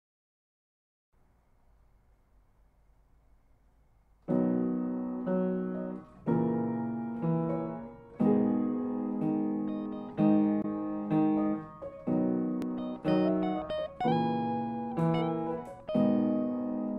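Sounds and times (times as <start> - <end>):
faint recording hiss: 1.2 - 16.9
keyboard playing slow chords: 4.4 - 16.9.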